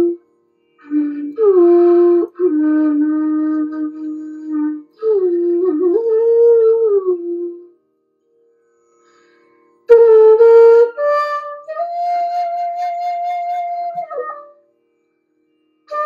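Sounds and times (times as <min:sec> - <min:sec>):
slow flute melody: 0:00.0 - 0:00.2, 0:00.8 - 0:07.8, 0:09.9 - 0:14.7.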